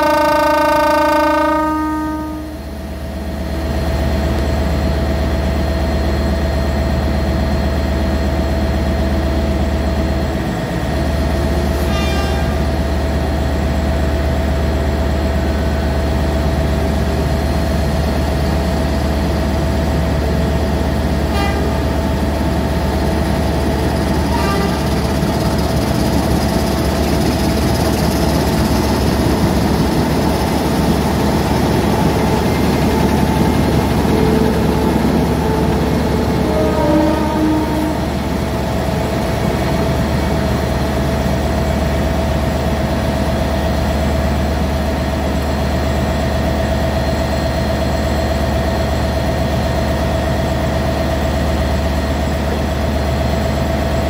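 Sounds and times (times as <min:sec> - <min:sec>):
locomotive horn blast: 0:00.0 - 0:02.8, 0:11.8 - 0:12.8, 0:21.2 - 0:22.2, 0:24.1 - 0:25.3, 0:31.9 - 0:38.4
diesel engine rumbling: 0:02.3 - 0:54.0.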